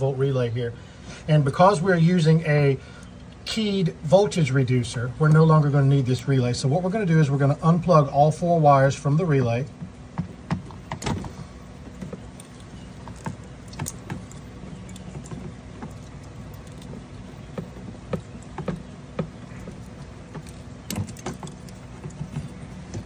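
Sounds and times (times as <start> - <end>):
steady low hum: 0.0 - 23.0
wires clicking and rustling: 9.8 - 23.0.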